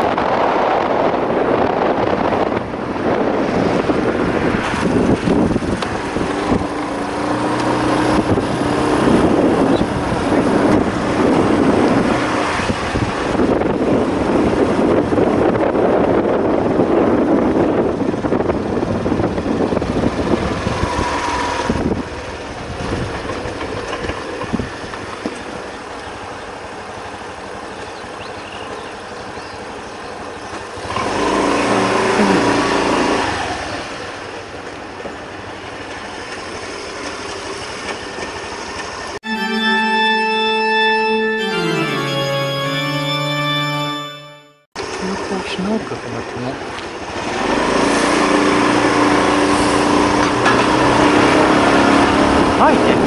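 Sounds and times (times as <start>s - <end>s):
wind noise: 0.0s - 7.3s, 8.0s - 23.4s
organ-like background music: 39.2s - 44.7s.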